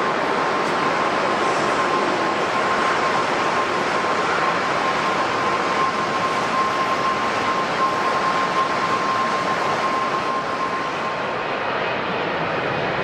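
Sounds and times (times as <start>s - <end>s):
jet engines rushing: 0.0s - 13.0s
thin high whine: 1.7s - 11.4s.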